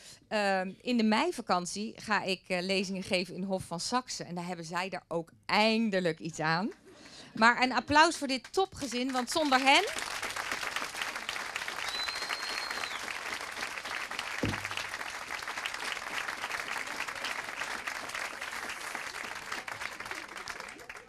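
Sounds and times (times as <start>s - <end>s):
audience applauding: 8.8s - 21.0s
low thump: 14.4s - 14.8s.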